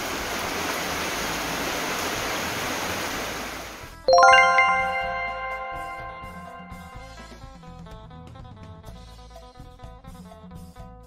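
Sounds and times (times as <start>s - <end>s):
heavy rain: 0.0s - 3.8s
running floodwater: 0.0s - 5.7s
bright chiming chord: 4.1s - 7.3s.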